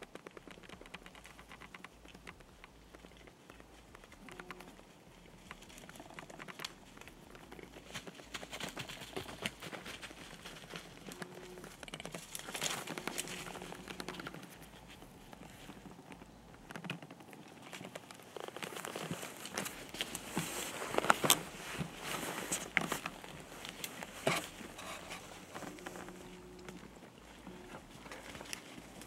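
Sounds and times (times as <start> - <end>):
rustling and crinkling: 0.0 - 29.0
small sharp clicks and crackles: 0.0 - 29.0.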